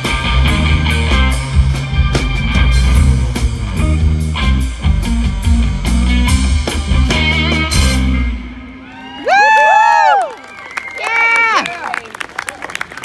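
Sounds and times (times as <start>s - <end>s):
live rock band playing: 0.0s - 9.3s.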